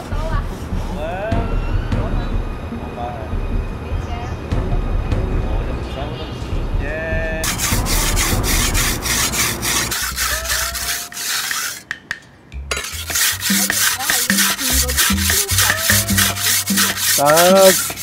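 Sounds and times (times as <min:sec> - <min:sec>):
knife on sharpening stone: 0:07.4 - 0:18.0.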